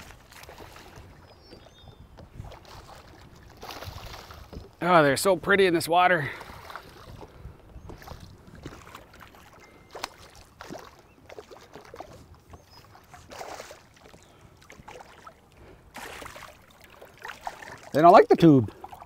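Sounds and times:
wind: 0.0s - 19.0s
fish splashing at the surface: 9.2s - 12.2s, 13.3s - 15.4s, 16.0s - 18.0s
water rushing: 14.9s - 19.0s.

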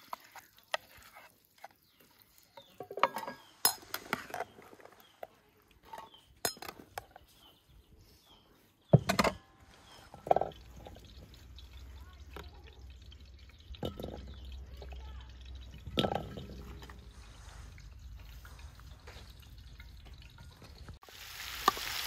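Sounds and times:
low outdoor rumble: 9.7s - 21.0s.

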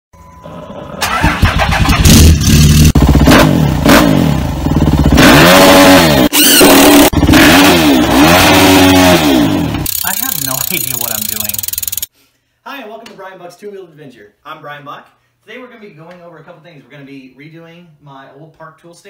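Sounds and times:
engine starting and revving: 0.4s - 4.4s, 5.0s - 12.1s.

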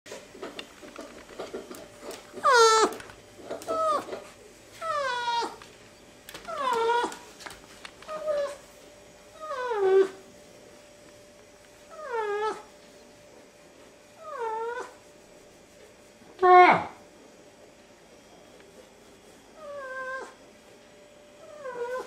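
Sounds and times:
coypu crying: 2.4s - 3.0s.

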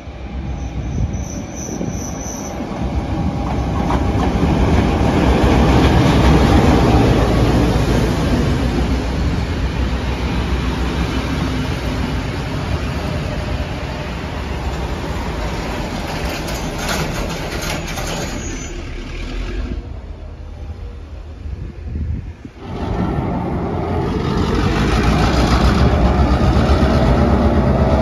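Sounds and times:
train wheels clattering on rails: 1.1s - 13.4s, 14.5s - 18.9s, 22.6s - 28.0s.

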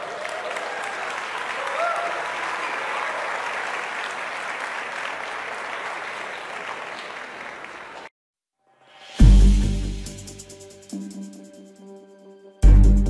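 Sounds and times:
audience applauding: 0.0s - 8.1s
electronic music: 9.2s - 13.0s.

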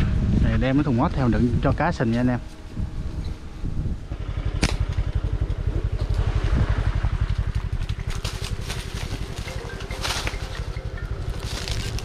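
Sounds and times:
motorbike engine idling: 2.0s - 12.0s
dry crackles: 4.6s - 12.0s.

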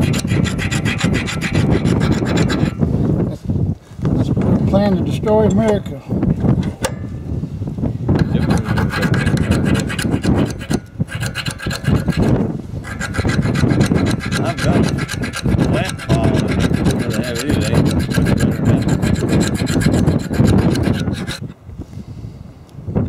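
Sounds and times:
file rasping on steel: 0.0s - 2.8s, 8.2s - 21.5s.

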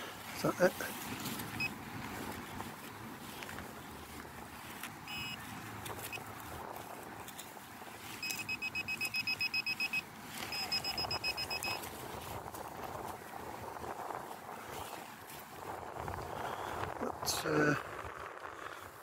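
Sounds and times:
metal detector beeping: 1.5s - 1.8s, 5.1s - 6.3s, 8.1s - 11.9s.

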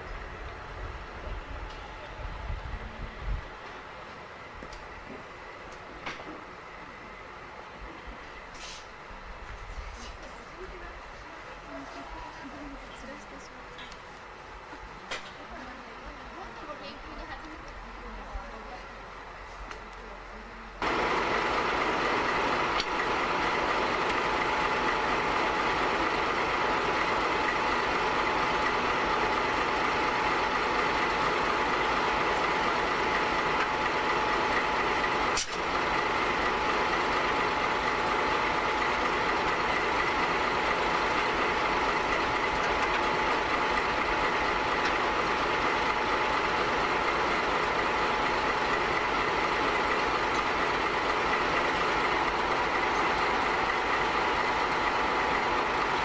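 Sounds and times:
diesel locomotive engine idling: 0.0s - 56.0s
sharp click: 35.4s - 35.6s.

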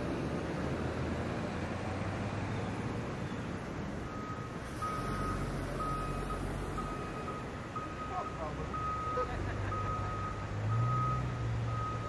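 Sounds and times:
reversing alarm beeping: 4.0s - 12.0s.

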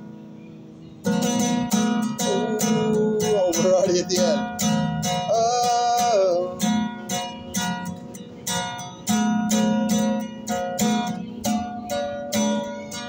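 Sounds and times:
acoustic guitar strumming: 0.0s - 13.0s
person singing wordless note: 2.2s - 4.4s.

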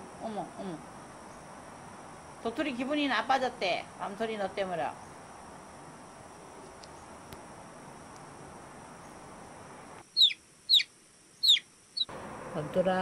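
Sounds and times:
room hiss: 0.0s - 13.0s
cartoon chick peeps: 10.2s - 12.1s.

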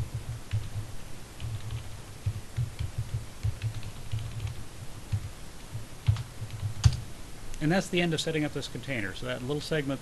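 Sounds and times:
keyboard typing: 0.0s - 7.0s.

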